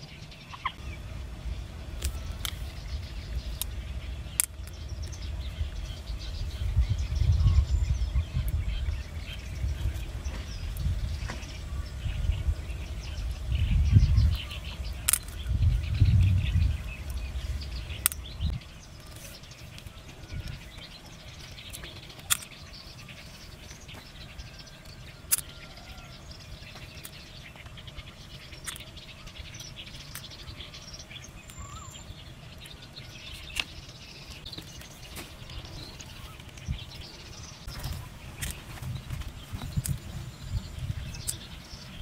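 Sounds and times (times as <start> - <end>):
low rumble: 0.0 - 21.7
faint bird chirps: 0.0 - 42.0
sharp clicks: 3.5 - 5.2, 15.0 - 15.5.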